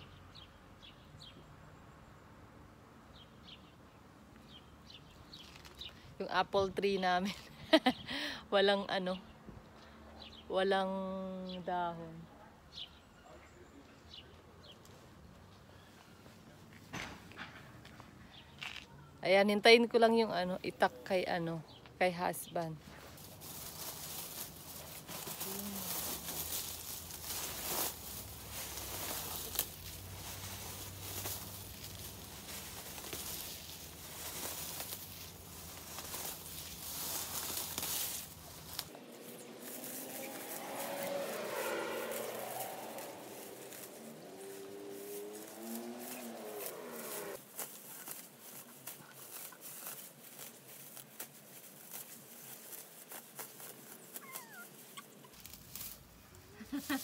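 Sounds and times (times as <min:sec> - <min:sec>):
dry grass rustling and crackling: 0:22.3 - 0:57.0.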